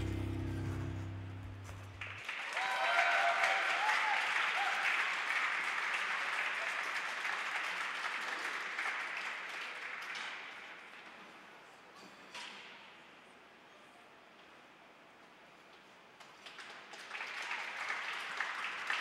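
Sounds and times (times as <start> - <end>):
program music: 0.0 - 2.1
spectators applauding: 0.0 - 10.9, 16.4 - 19.0.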